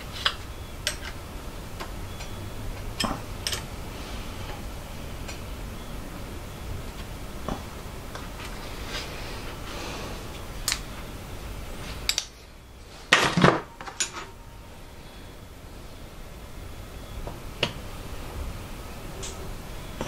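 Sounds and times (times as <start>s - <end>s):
low background hum: 0.0s - 20.0s
metal tools clinking: 2.1s - 3.7s.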